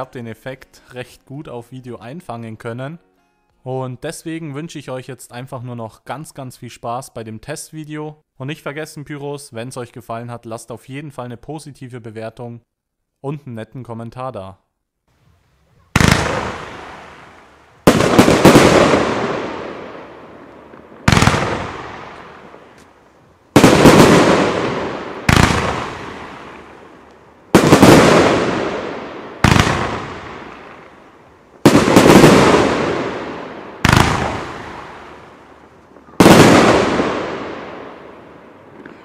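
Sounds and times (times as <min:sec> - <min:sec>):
firework bangs with rumble: 0:16.0 - 0:17.2, 0:17.8 - 0:19.8, 0:21.0 - 0:22.2, 0:23.6 - 0:26.6, 0:27.5 - 0:30.6, 0:31.6 - 0:35.0.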